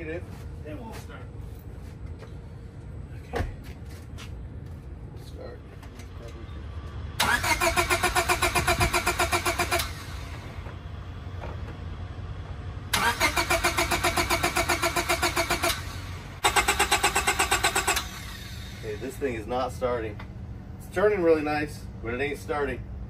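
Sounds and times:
car engine cranking on starter: 7.2s - 10.6s, 12.9s - 19.0s.

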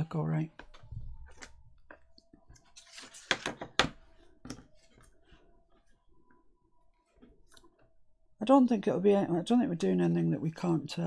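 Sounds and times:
paper rustling: 1.3s - 5.4s.

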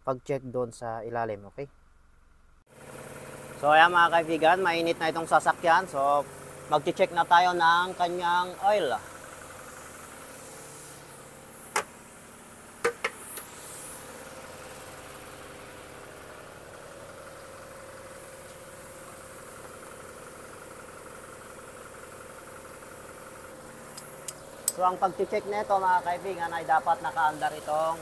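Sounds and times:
diesel engine idling: 1.8s - 28.0s
sharp clicks: 23.9s - 24.8s.

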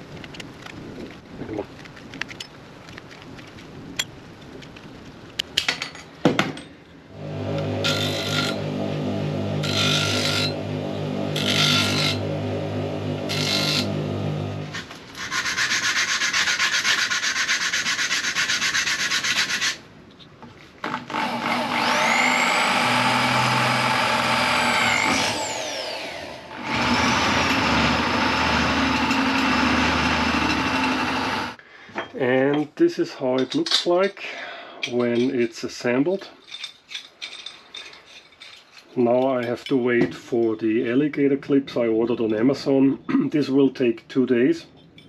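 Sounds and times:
bench grinder motor humming: 7.1s - 14.9s, 21.0s - 31.6s
metal rasping on grinding wheel: 7.2s - 19.7s, 26.6s - 31.6s.

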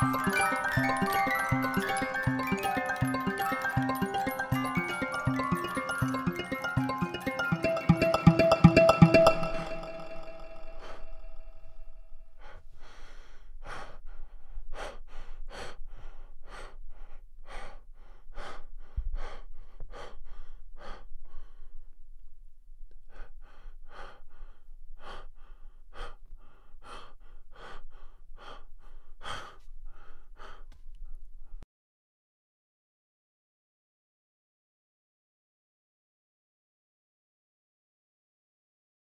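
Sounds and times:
person breathing rapidly: 0.0s - 22.0s, 22.9s - 31.6s.

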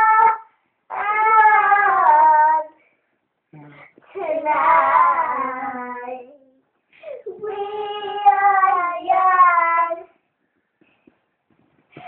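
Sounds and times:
child singing: 0.0s - 2.8s, 4.0s - 6.6s, 7.2s - 10.2s.

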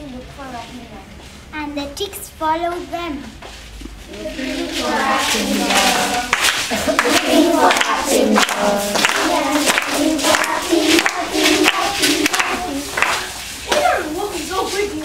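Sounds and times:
girls singing in unison: 4.1s - 13.5s
sharp beat: 4.7s - 14.2s.

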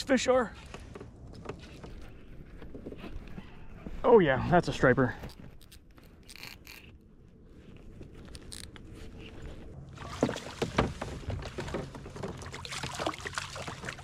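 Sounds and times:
fish splashing at surface: 12.3s - 14.0s.

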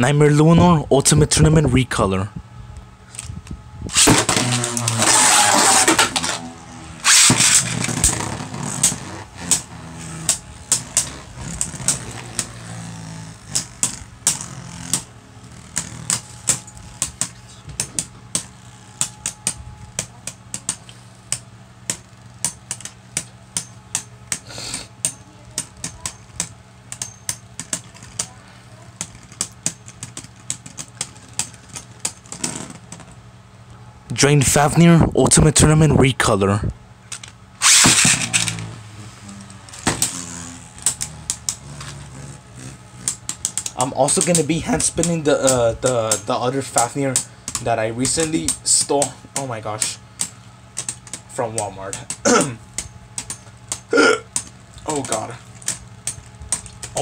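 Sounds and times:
spinning tops whirring: 3.9s - 21.0s, 37.5s - 49.1s.

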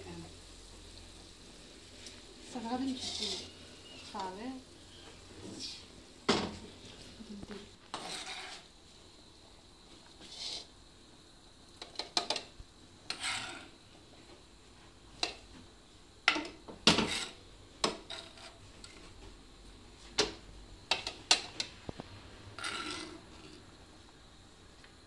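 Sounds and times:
spatula scraping frying pan: 2.8s - 4.1s, 7.8s - 8.7s, 10.2s - 10.7s, 13.0s - 13.8s, 16.9s - 19.0s, 22.6s - 23.6s.

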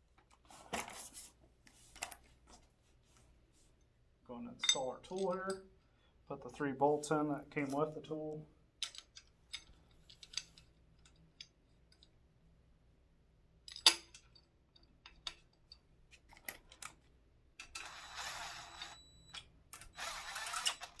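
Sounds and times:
cordless drill running: 17.8s - 19.1s, 19.8s - 21.0s.

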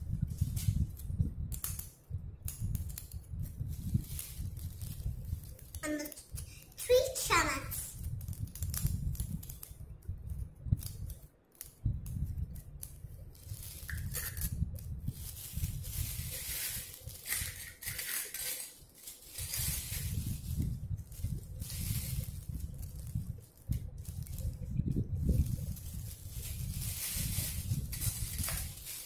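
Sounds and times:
plastic toy dishes clattering: 16.6s - 19.2s.

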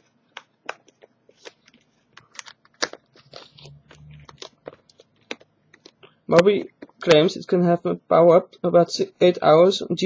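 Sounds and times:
packaging clicks and crackles: 0.3s - 3.7s.

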